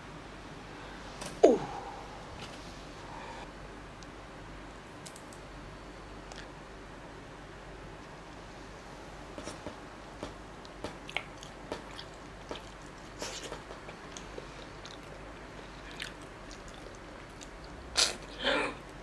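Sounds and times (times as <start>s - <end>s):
chewing and crunching shrimp: 10.6s - 19.0s.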